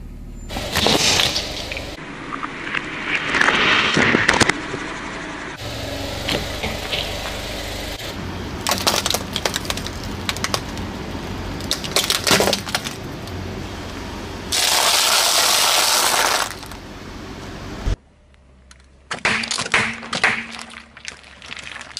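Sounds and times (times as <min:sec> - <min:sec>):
tyre crushing small objects: 0:08.6 - 0:10.9, 0:11.6 - 0:13.1, 0:18.7 - 0:21.9.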